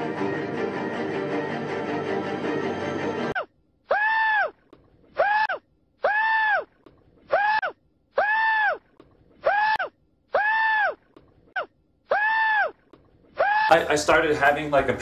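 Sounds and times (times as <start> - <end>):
person screaming: 3.4 - 4.6, 5.2 - 6.7, 7.3 - 8.8, 9.4 - 11.0, 11.6 - 12.8, 13.4 - 13.7.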